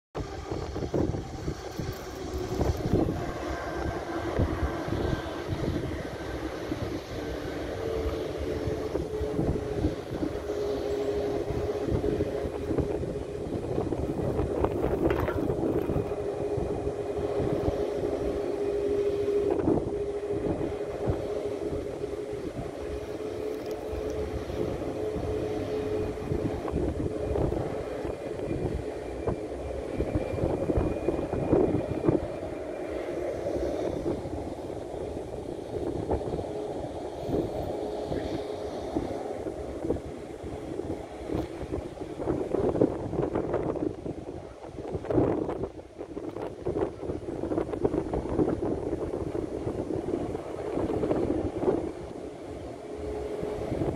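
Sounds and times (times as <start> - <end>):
distant jet engines whining: 0.2 - 53.9
wind rumble on microphone: 0.2 - 53.9.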